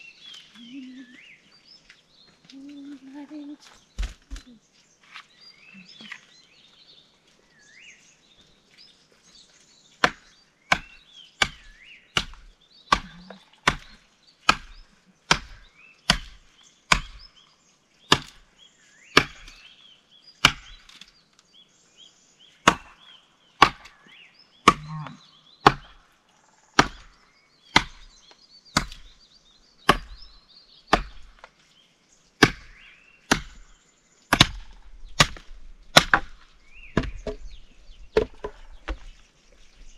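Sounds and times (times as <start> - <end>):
birds chirping: 0.0 - 39.9
axe chopping wood: 10.0 - 17.3, 18.1 - 18.5, 19.1 - 19.7, 20.4 - 21.1, 22.6 - 23.0, 23.6 - 26.0, 26.8 - 29.2, 29.8 - 31.5, 32.4 - 33.7, 34.3 - 37.5, 38.1 - 39.1.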